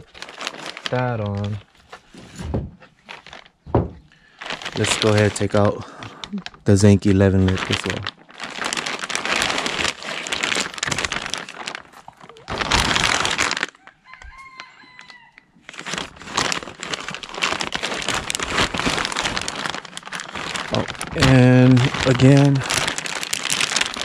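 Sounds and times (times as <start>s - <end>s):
plastic and cardboard crinkling: 0.0s - 24.0s
rooster crowing: 13.8s - 15.5s.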